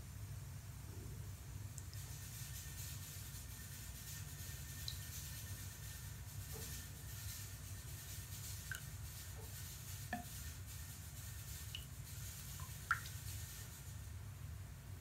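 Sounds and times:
steady low hum: 0:00.0 - 0:15.0
bath bomb fizzing: 0:06.4 - 0:14.0.

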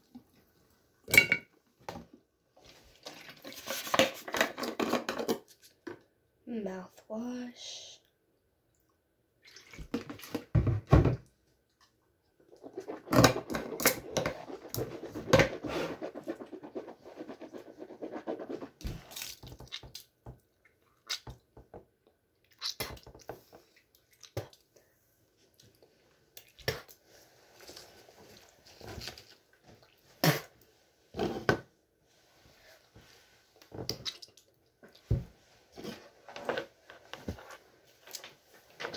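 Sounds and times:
spitting into sink: 0:12.5 - 0:17.5.

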